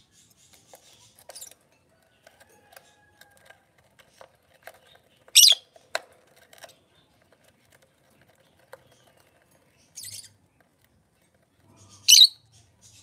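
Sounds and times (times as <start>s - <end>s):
lovebird squawking: 5.4s - 5.6s, 11.8s - 12.4s.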